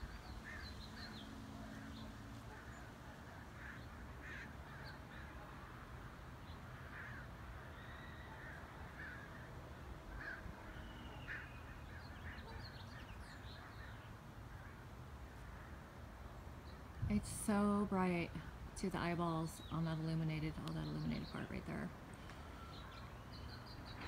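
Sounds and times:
birds chirping: 0.0 - 5.7, 6.3 - 24.0
crow cawing: 0.4 - 0.7, 3.6 - 5.4, 6.8 - 9.5, 10.1 - 11.9
low background rumble: 15.4 - 22.1.

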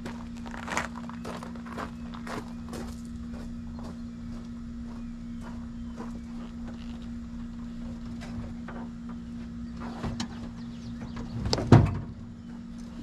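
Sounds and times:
steady low hum: 0.0 - 13.0
knocks and rustles of panel handling: 9.8 - 12.2.

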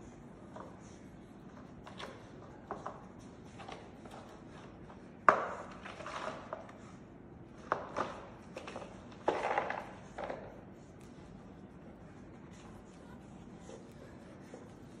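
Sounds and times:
scraping and rustling: 5.4 - 7.0.

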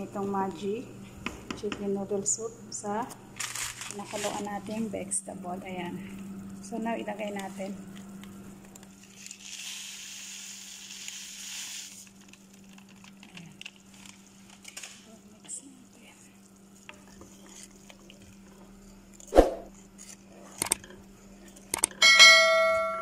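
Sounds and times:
wooden spoon stirring soup: 15.3 - 21.7.

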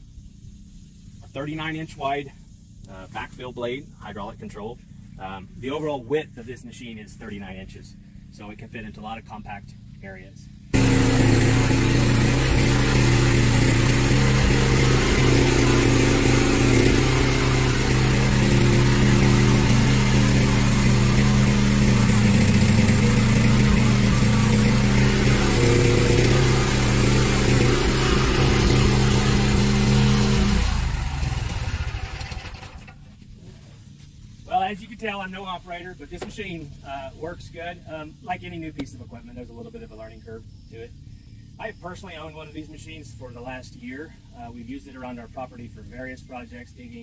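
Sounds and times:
excavator engine running: 10.7 - 33.0.

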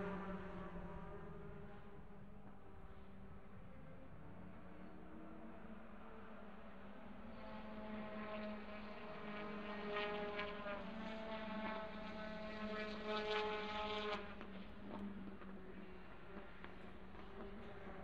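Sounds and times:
distant racing car engine: 0.0 - 3.6, 5.4 - 18.0.

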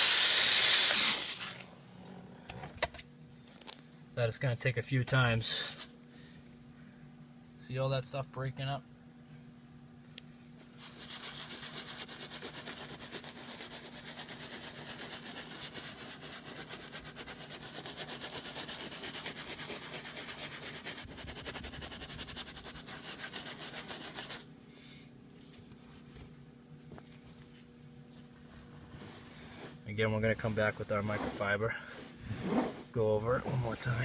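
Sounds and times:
brush scrubbing leather: 10.8 - 24.5.

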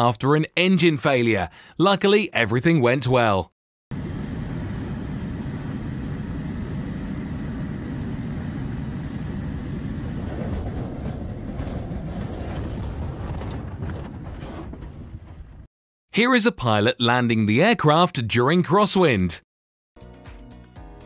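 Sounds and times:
air rushing past aircraft: 3.9 - 13.5
knocks and rattles: 10.3 - 15.7.

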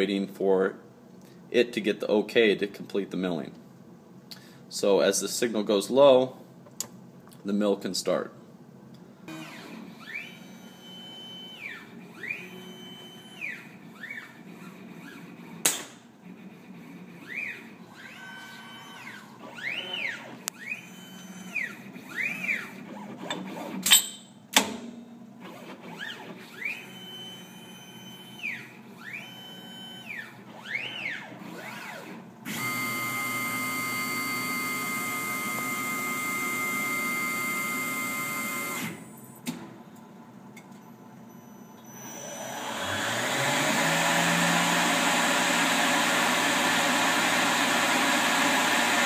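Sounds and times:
robot arm motors whining: 17.0 - 23.7, 25.8 - 39.0.

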